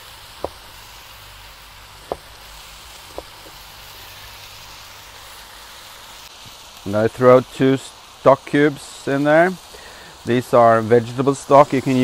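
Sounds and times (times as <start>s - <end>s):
meat sizzling on grill: 0.0s - 12.0s
knife knocking on cutting board: 2.1s - 2.3s, 3.1s - 3.6s.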